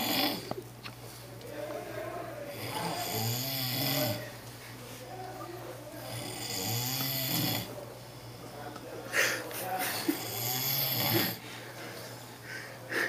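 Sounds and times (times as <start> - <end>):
man snoring: 0.0 - 0.5, 2.6 - 4.2, 6.0 - 7.7, 10.2 - 11.4.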